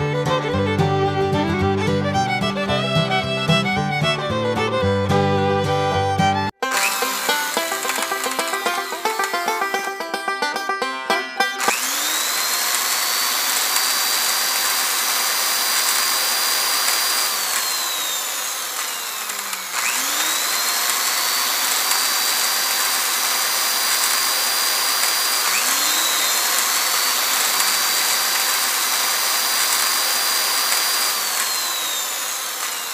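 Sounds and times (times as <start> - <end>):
small drill motor whining: 6.5 - 9.9, 11.6 - 32.9.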